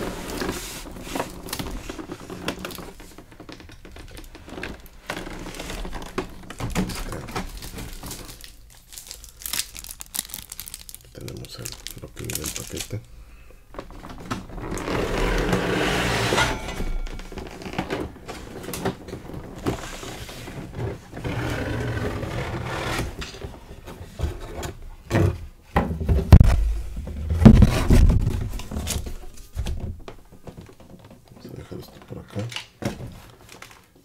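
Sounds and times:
cardboard packaging sliding and rustling: 0:00.0 - 0:02.9
sharp knocks and thumps: 0:25.0 - 0:31.2.

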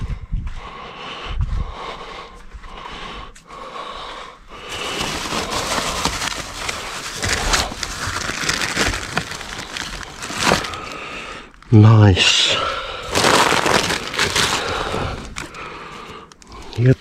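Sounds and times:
plastic bags rustling: 0:04.5 - 0:11.7, 0:12.5 - 0:17.0.

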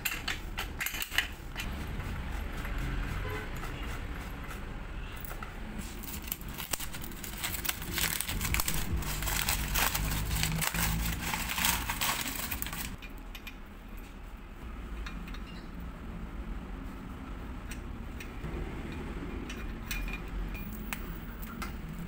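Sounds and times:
paper crinkling and rustling: 0:05.8 - 0:13.0.

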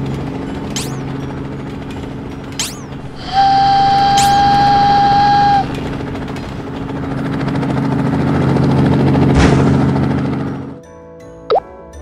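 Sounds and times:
steady low hum: 0:00.6 - 0:07.8
loud held tone: 0:03.0 - 0:06.0.

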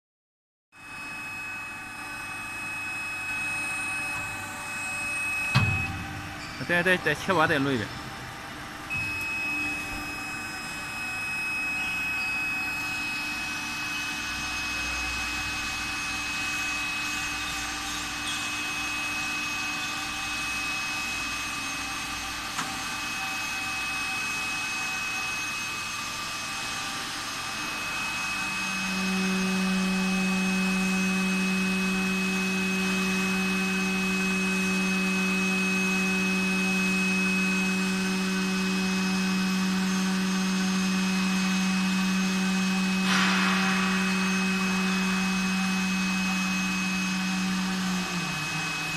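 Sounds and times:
hydraulic pump high whine: 0:00.8 - 0:48.9
low hum: 0:27.6 - 0:48.9.

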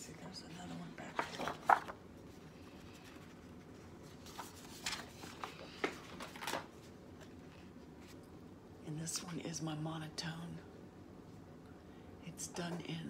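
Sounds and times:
paper pages rustling: 0:00.5 - 0:08.3.

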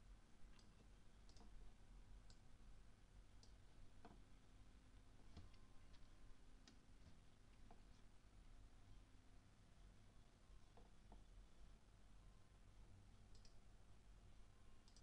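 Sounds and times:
low steady hum: 0:00.0 - 0:15.0
faint sharp clicks: 0:00.5 - 0:01.6, 0:02.2 - 0:02.4, 0:13.3 - 0:13.6.

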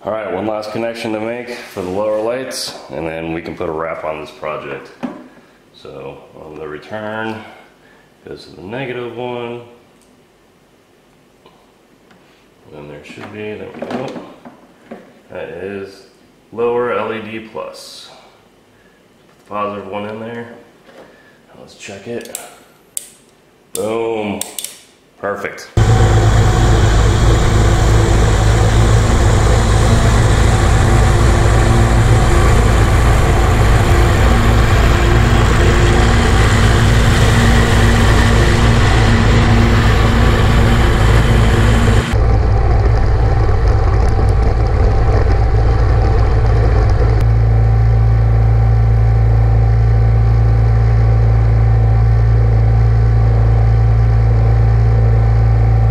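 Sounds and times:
riding mower engine running: 0:25.8 - 0:55.9.

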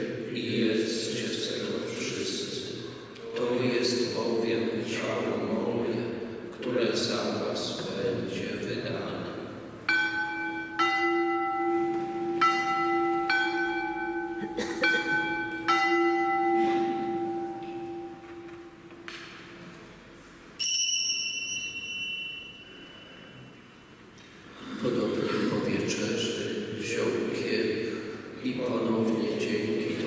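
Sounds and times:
altar bells ringing: 0:09.9 - 0:18.9, 0:20.6 - 0:23.8.

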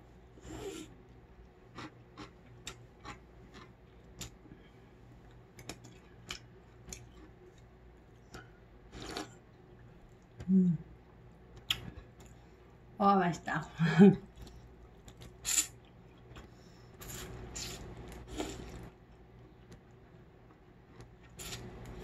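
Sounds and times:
chewing crisp food: 0:01.7 - 0:04.4
person humming: 0:10.4 - 0:10.9.

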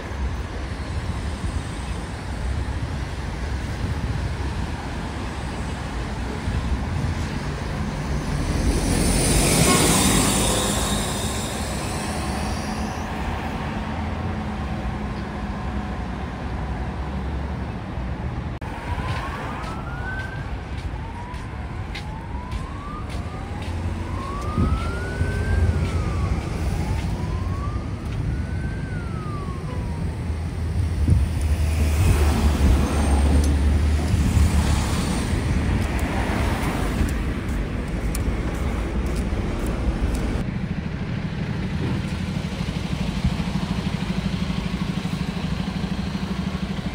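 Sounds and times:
road traffic: 0:00.0 - 0:46.9
faint emergency siren wailing: 0:08.2 - 0:15.9, 0:18.6 - 0:37.1
coach diesel engine rumbling: 0:20.5 - 0:46.9.

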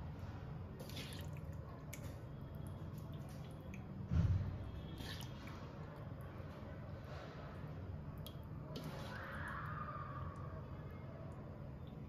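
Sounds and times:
wet squishing of food: 0:00.2 - 0:12.0.

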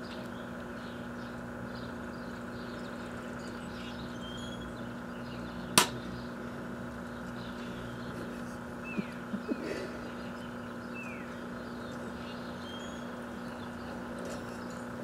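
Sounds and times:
birds chirping: 0:00.0 - 0:15.0
microwave oven humming: 0:00.0 - 0:15.0
sharp crack: 0:05.8 - 0:06.0.

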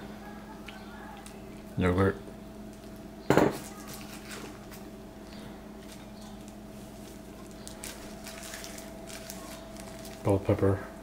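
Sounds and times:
steady low hum: 0:00.0 - 0:11.0
soft squishing: 0:05.3 - 0:10.3.

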